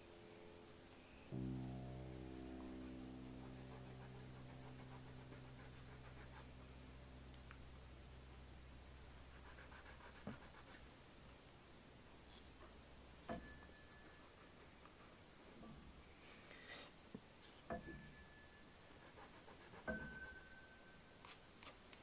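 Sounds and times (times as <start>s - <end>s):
background music: 0.0s - 7.3s
fingertips rubbing pastel: 3.2s - 6.7s, 9.3s - 10.9s, 18.9s - 20.4s
pastel scratching on paper: 3.3s - 6.7s, 9.3s - 10.9s, 18.9s - 20.4s.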